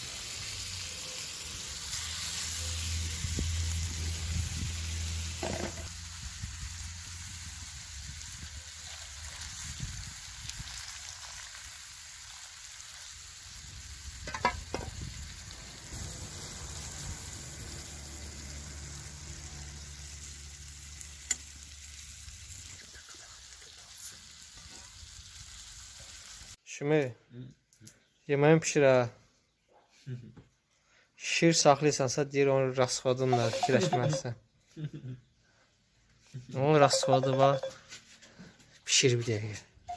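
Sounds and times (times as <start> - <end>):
chicken and potatoes sizzling: 0.0 - 26.6, 33.3 - 34.3, 36.8 - 37.8.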